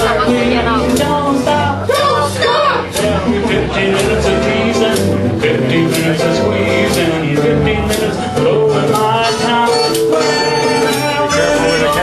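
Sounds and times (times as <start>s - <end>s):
strummed guitars: 0.0s - 12.0s
upright bass walking: 0.0s - 12.0s
harmonica: 8.9s - 12.0s.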